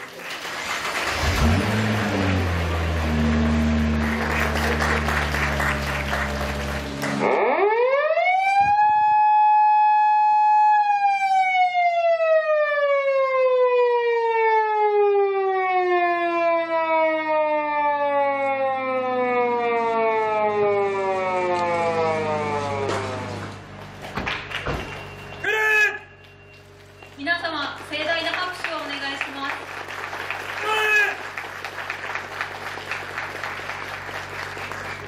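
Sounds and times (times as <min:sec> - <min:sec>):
applause: 0:00.0 - 0:07.3, 0:23.8 - 0:25.6, 0:26.2 - 0:35.0
police siren wailing: 0:01.1 - 0:23.8, 0:30.4 - 0:35.0.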